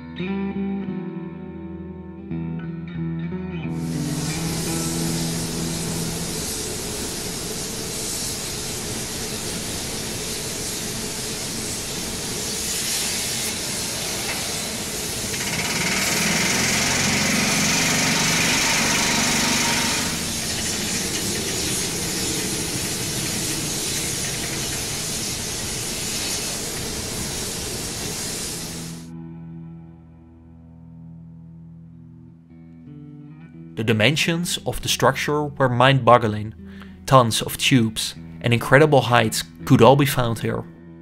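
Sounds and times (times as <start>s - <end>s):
blast furnace hissing: 3.7s - 29.1s.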